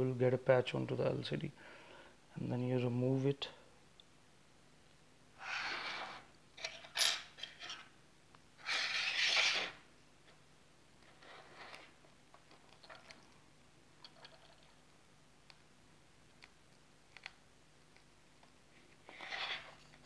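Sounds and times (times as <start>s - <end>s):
tablet scraping on work surface: 5.4s - 6.3s, 8.6s - 9.8s, 11.1s - 12.0s, 19.1s - 19.9s.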